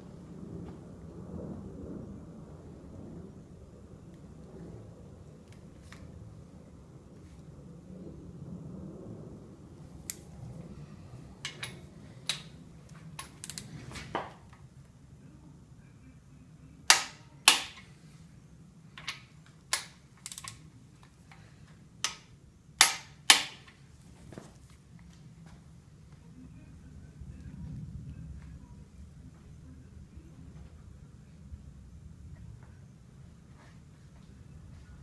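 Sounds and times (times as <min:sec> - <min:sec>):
torque wrench clicking: 0:13.2 - 0:13.7, 0:19.0 - 0:20.6.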